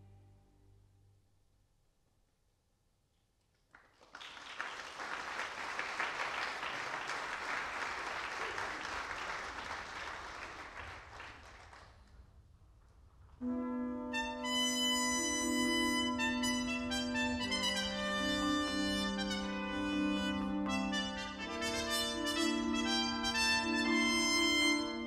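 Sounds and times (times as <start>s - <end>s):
audience applauding: 3.7s - 12.1s.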